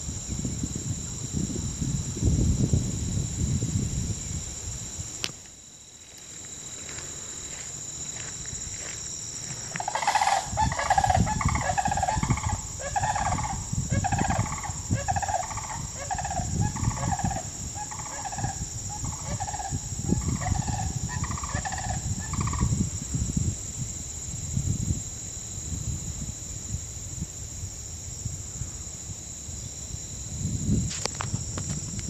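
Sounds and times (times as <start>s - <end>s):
crane calling: 9.6s - 22.7s.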